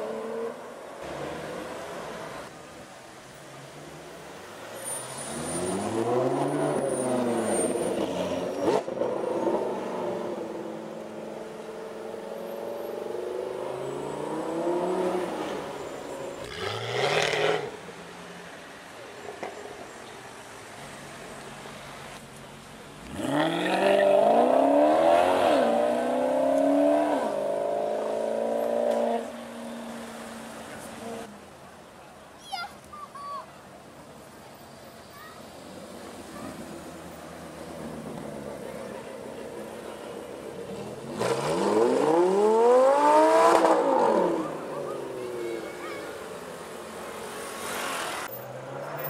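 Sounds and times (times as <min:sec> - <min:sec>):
sports cars driving past: 0:03.3 - 0:31.4, 0:35.3 - 0:49.0
sports car engine revving: 0:40.8 - 0:45.0.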